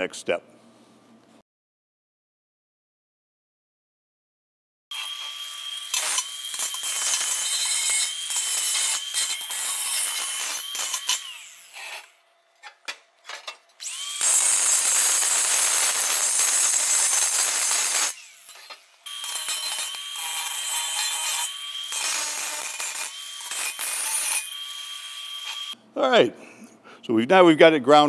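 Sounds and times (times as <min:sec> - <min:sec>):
angle grinder grinding steel: 0:04.9 - 0:12.2, 0:13.8 - 0:25.8.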